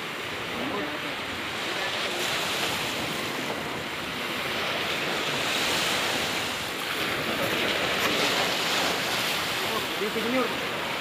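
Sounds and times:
surf washing on beach: 0.0s - 11.0s.

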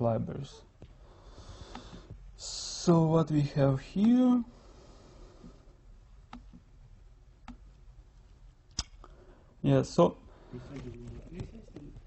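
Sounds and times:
computer mouse click: 6.3s - 6.6s, 7.4s - 7.6s.

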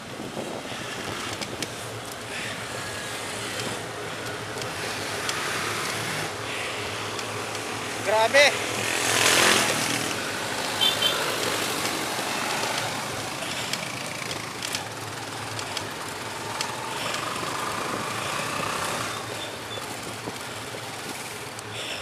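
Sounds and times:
city road traffic: 0.0s - 22.0s.

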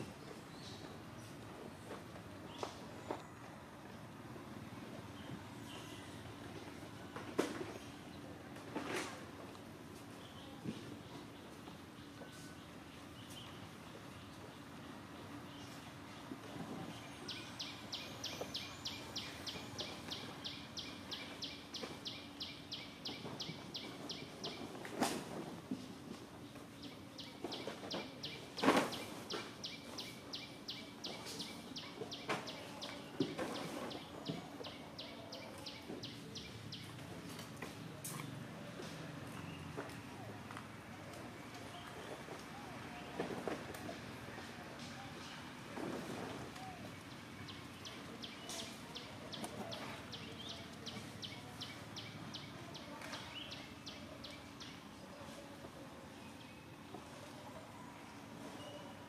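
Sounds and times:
forest background noise: 0.0s - 59.0s
bird chirping: 16.9s - 24.7s.

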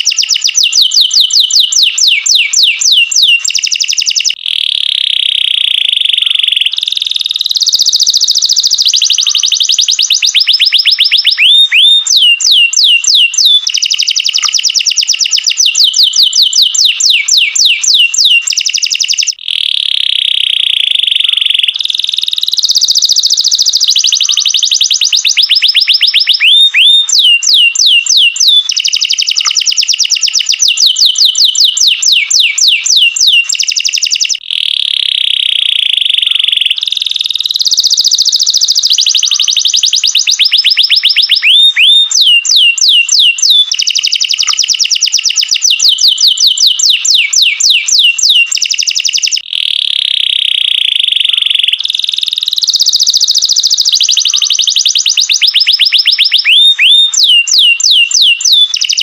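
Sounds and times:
canary singing: 0.0s - 59.0s.

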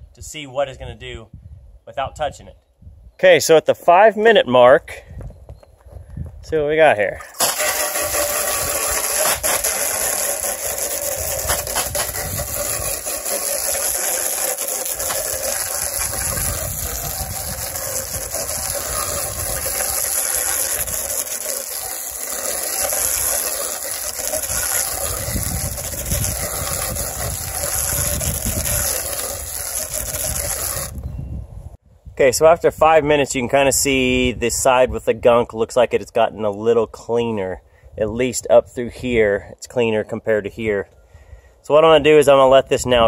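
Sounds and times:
hose spraying water onto metal: 7.3s - 31.0s.

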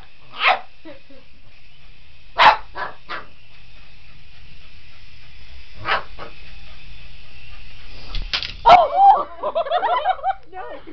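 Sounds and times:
dog barking: 0.3s - 0.7s, 2.4s - 3.3s, 5.8s - 6.4s, 8.6s - 8.9s.

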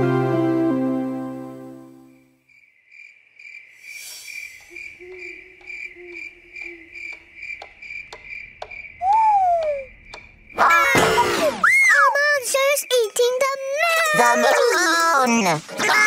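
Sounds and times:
cricket chirping: 2.3s - 15.8s
clock ticking: 5.1s - 10.3s.

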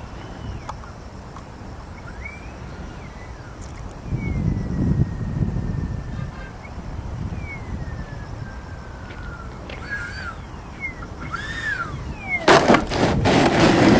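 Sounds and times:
model jet fan whine: 0.0s - 13.9s
rising and falling chirps: 1.9s - 12.6s.

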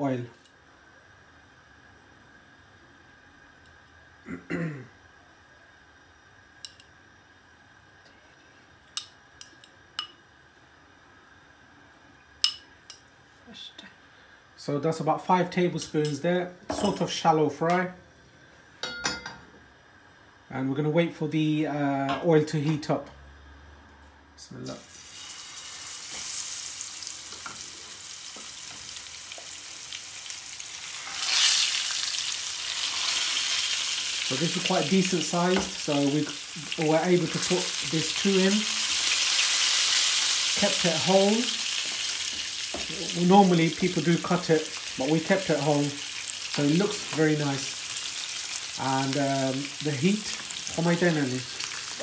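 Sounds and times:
fish sizzling in oil: 24.7s - 52.0s.

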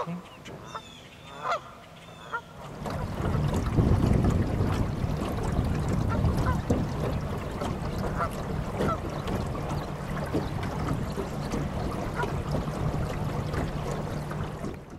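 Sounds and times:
geese honking: 0.0s - 2.6s
boat motor humming: 0.0s - 14.9s.

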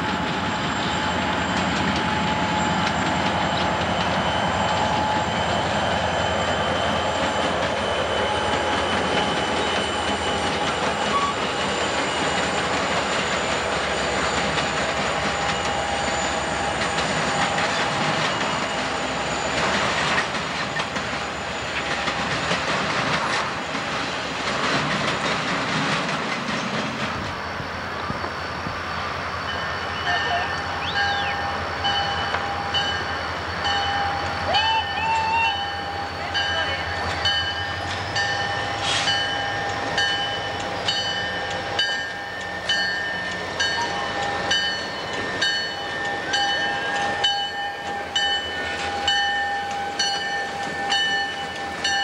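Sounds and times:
wheel squeal: 0.0s - 22.6s
train wheel rumble and clatter: 0.0s - 52.0s.

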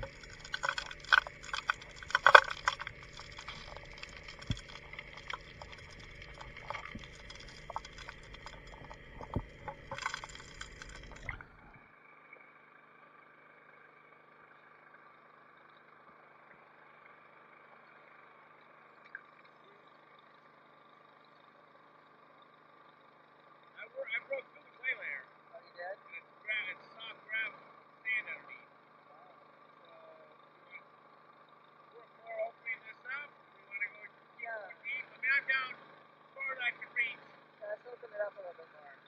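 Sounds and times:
rushing water: 0.0s - 11.6s
stones knocking underwater: 0.0s - 11.7s.

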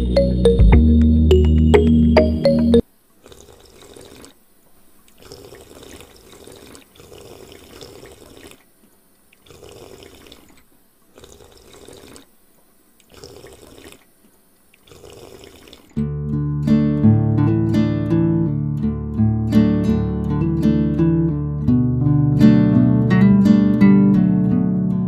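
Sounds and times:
loud music: 0.0s - 2.8s
water sloshing in a bowl: 3.2s - 4.4s, 5.1s - 12.4s, 13.0s - 16.0s.

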